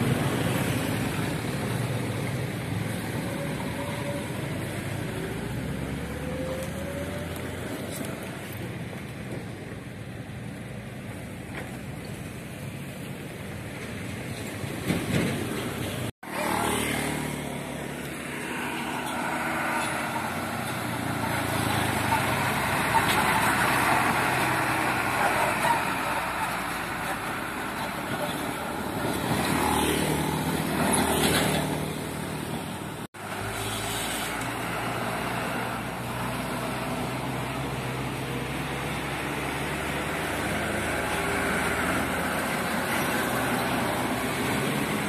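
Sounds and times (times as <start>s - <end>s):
truck diesel engine passing: 13.6s - 45.0s
motorcycles passing: 15.6s - 45.0s.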